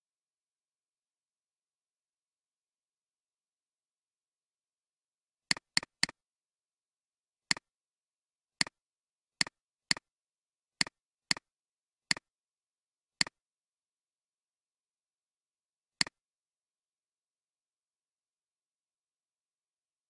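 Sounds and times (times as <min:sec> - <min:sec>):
computer mouse clicking: 0:05.5 - 0:06.2.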